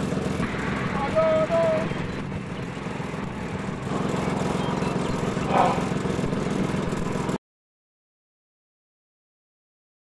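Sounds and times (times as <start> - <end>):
low rumbling with fast flutter: 0.0 - 7.4.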